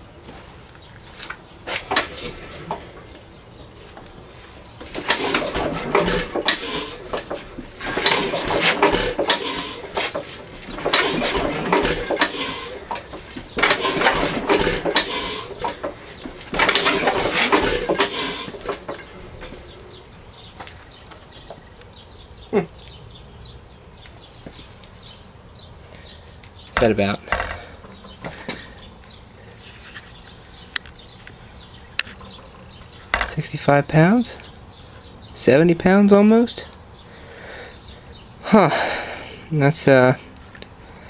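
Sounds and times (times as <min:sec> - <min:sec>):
engine hissing and clattering: 0:03.9 - 0:20.4.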